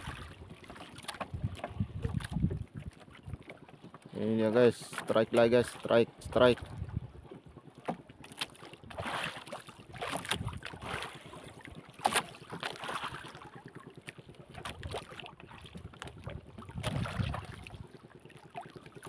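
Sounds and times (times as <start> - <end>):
water slapping boat hull: 0.0 - 19.0
wind on microphone: 1.3 - 2.9, 6.2 - 7.2, 10.2 - 10.9, 15.7 - 17.9.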